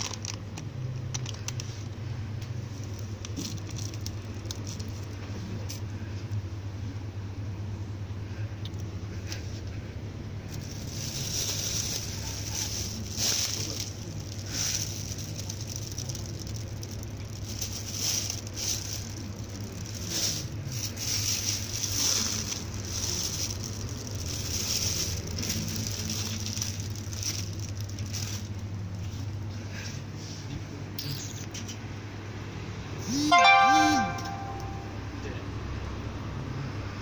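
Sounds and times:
plastic bags crinkling: 0.0 - 1.7, 2.7 - 5.8, 10.5 - 29.5.

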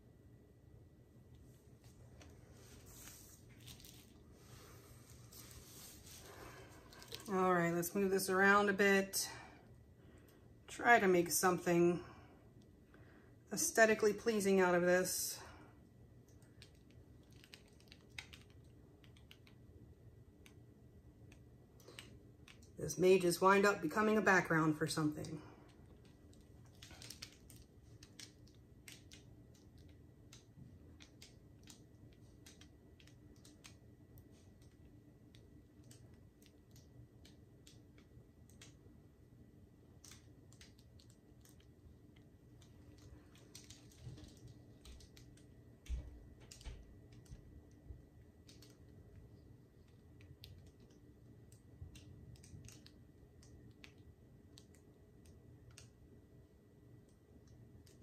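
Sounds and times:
faint clicks and taps: 16.2 - 19.8, 20.4 - 22.8, 25.2 - 39.2, 39.8 - 56.2, 56.9 - 58.0.

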